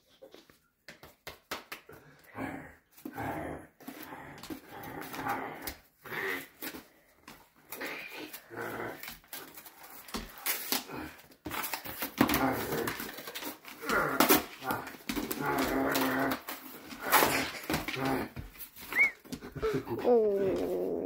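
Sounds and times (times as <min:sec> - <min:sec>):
dog growling: 0:02.4 - 0:06.7, 0:07.7 - 0:09.6, 0:13.8 - 0:21.0
cardboard crinkling and ripping: 0:07.6 - 0:19.3.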